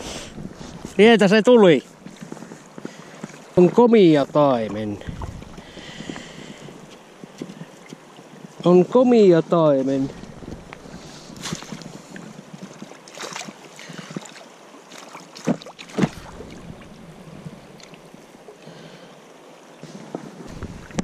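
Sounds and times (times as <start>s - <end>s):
flowing river water: 0.0s - 21.0s
fish splashing in net: 12.8s - 16.9s.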